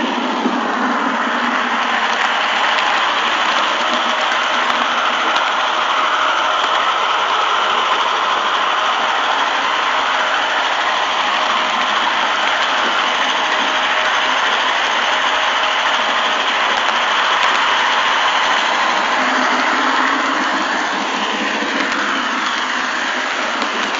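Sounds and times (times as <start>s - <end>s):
model train whirring and rattling: 0.0s - 23.9s.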